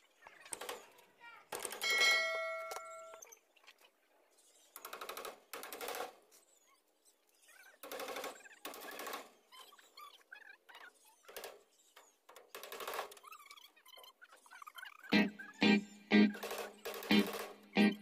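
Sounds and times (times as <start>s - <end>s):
short chime with clicks: 1.9s - 3.2s.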